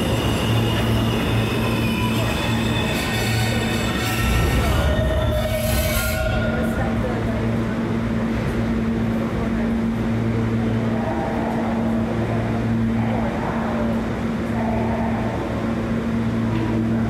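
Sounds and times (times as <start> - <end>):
subway train rumble: 0.0 - 17.0
constant low hum: 3.5 - 17.0.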